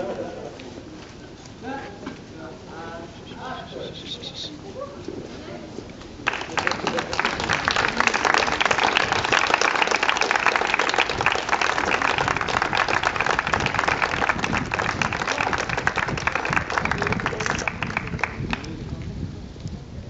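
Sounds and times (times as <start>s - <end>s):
crowd applauding: 6.2s - 18.8s.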